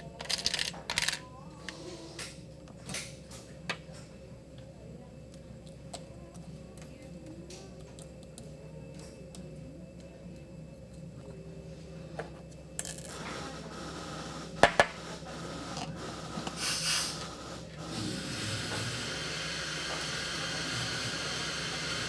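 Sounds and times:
metal parts clicking and clinking: 0:00.0 - 0:01.3.

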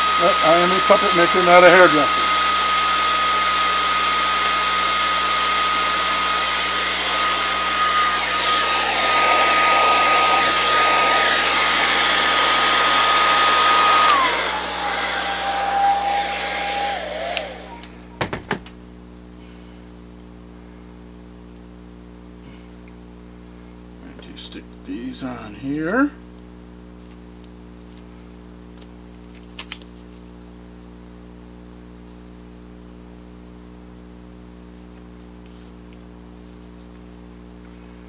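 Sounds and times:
hair dryer running: 0:00.0 - 0:18.8.

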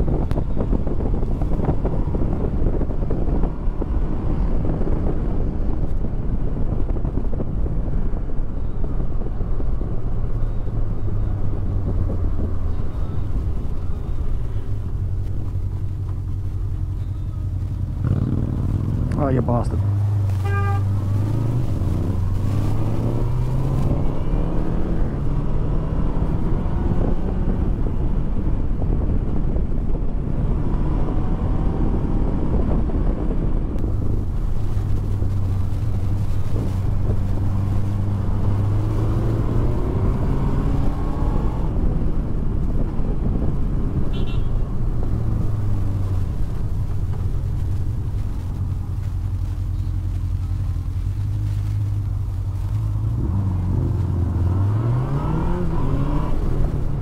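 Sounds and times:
road and wind noise: 0:00.0 - 0:57.0
motorcycle engine revving: 0:17.0 - 0:27.8, 0:44.1 - 0:57.0.

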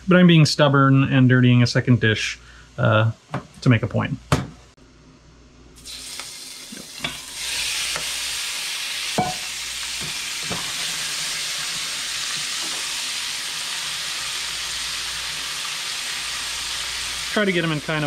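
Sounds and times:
shrimp sizzling in a pan: 0:05.8 - 0:18.0.

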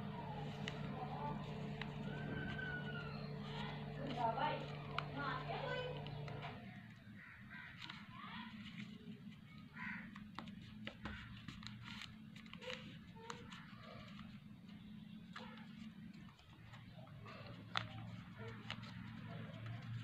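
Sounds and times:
steady low hum: 0:00.0 - 0:09.6
paper being folded and creased: 0:00.0 - 0:20.0.

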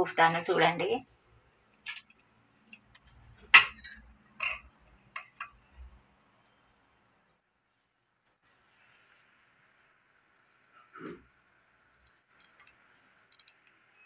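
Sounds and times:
light metal clinks: 0:03.2 - 0:04.7.

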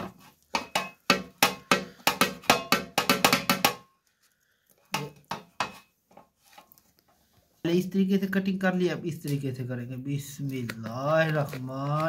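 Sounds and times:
knife chopping on metal pan: 0:00.0 - 0:03.9, 0:04.9 - 0:05.9.

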